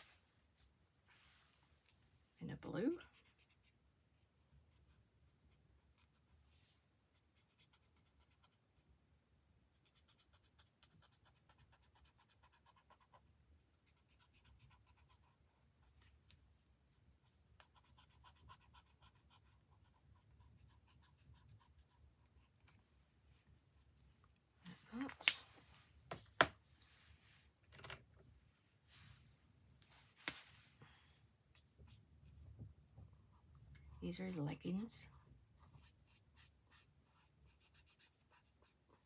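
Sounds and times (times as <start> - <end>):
marker scratching on paper: 3.1 - 3.8, 7.1 - 8.6, 17.6 - 22.5, 35.6 - 39.0.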